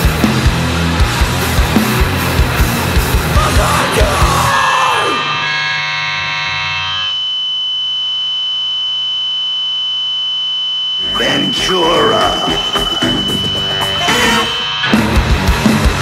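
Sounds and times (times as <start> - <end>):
drums and bass: 0.0 - 5.0, 11.0 - 16.0
electric guitar feedback whine: 0.6 - 16.0.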